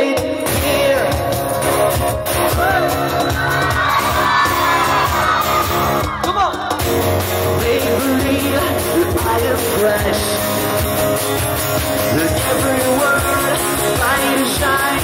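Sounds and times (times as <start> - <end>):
man singing: 0.0 - 3.3, 6.2 - 10.9, 12.0 - 15.0
bass: 0.0 - 15.0
drums: 0.0 - 15.0
electric guitars: 0.0 - 15.0.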